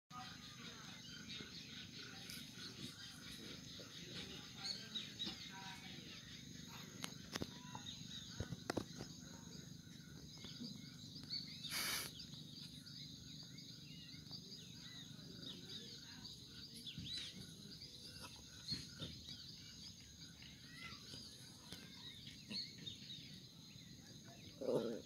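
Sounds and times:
birds chirping: 0.1s - 25.0s
high insect buzz: 11.2s - 12.5s.

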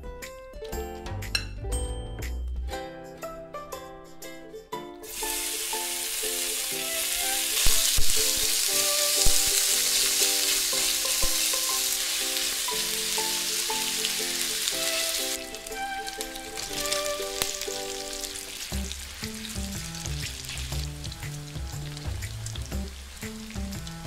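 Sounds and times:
bacon sizzling in frying pan: 5.1s - 24.0s.

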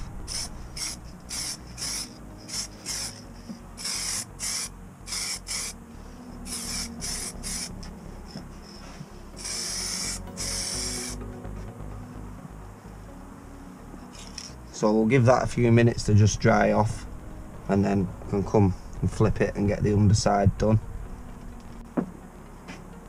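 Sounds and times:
spray paint can hissing: 0.0s - 5.8s, 6.4s - 7.9s, 8.7s - 11.2s.

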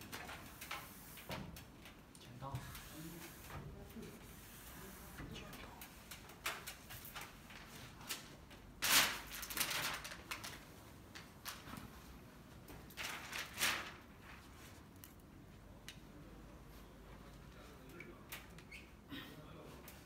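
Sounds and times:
plastic sheet rustling: 5.8s - 14.9s.

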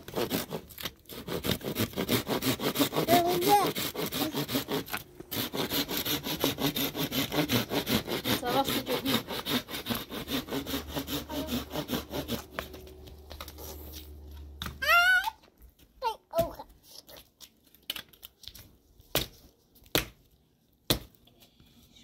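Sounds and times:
hand saw cutting wood: 0.0s - 12.9s
child calling out: 3.1s - 3.8s, 14.8s - 15.4s, 16.0s - 17.2s.

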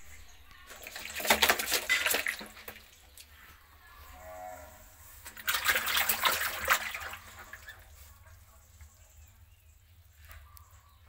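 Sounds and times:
water splashing and sloshing: 0.0s - 3.8s, 4.5s - 8.9s.

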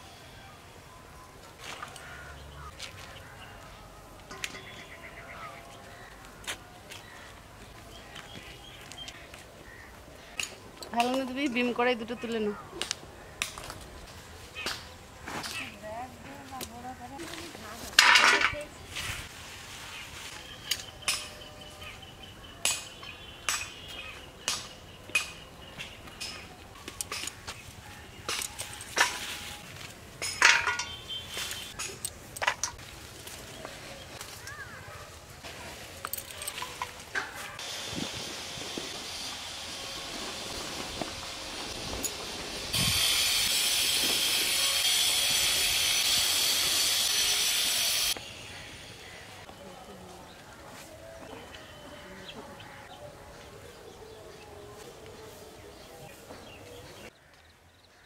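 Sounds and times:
metal kitchenware clinking: 4.3s - 5.0s, 18.0s - 18.6s, 30.2s - 31.1s.

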